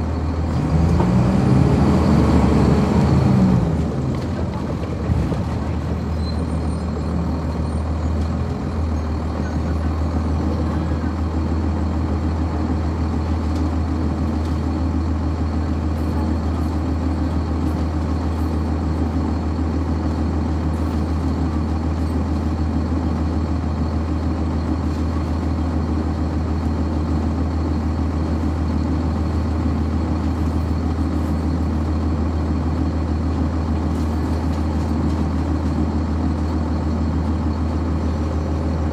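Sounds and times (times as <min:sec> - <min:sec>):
bus diesel engine droning: 0:00.0 - 0:38.9.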